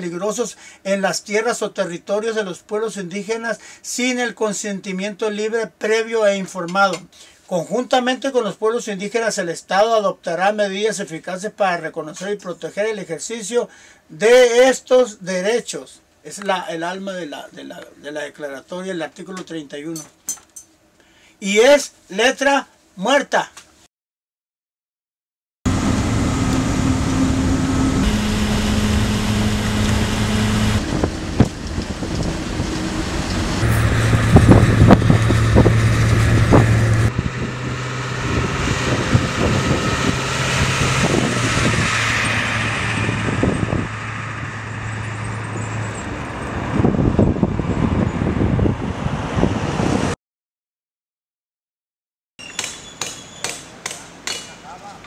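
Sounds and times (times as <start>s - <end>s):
car engine hum and road noise: 25.7s - 49.9s.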